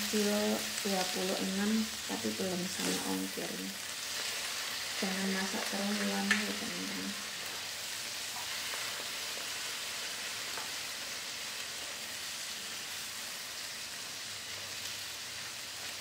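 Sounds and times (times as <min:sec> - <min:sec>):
food sizzling in oil: 0:00.0 - 0:16.0.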